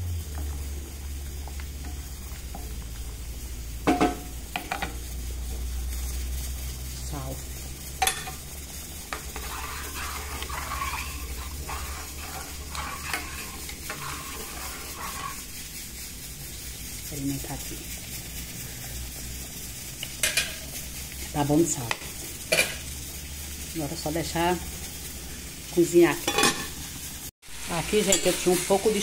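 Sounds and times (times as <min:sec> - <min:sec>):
wooden spatula stirring rice: 0:05.9 - 0:17.9
scraping and sloshing: 0:09.1 - 0:15.5.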